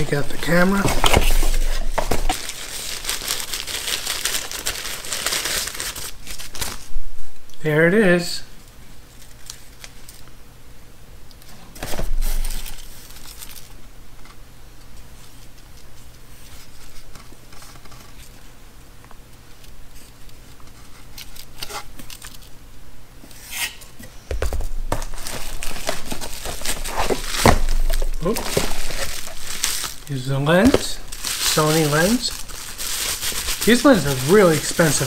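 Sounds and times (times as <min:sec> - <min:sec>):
plastic wrapping crinkling: 0:00.0 - 0:06.9, 0:09.1 - 0:10.2, 0:12.1 - 0:13.8, 0:19.5 - 0:22.5, 0:24.8 - 0:35.0.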